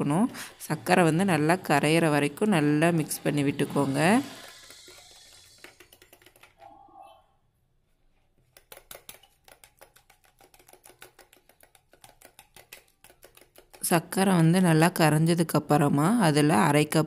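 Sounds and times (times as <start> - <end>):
whisk clicking against bowl: 4.5 - 6.6, 8.4 - 14.2.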